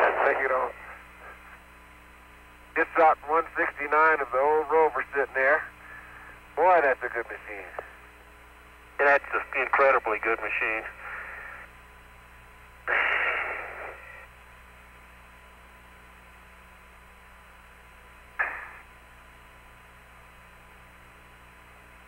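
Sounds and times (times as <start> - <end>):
bursts of radio static: 0.0 - 1.5, 9.0 - 11.4, 18.4 - 18.9
radio hiss and hum: 0.0 - 22.0.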